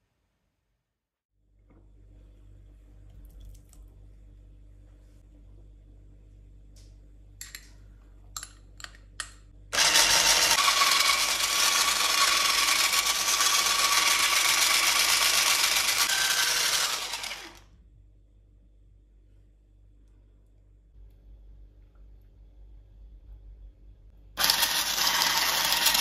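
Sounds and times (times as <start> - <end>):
electric hand mixer whirring: 9.8 - 17.7, 24.4 - 26.0.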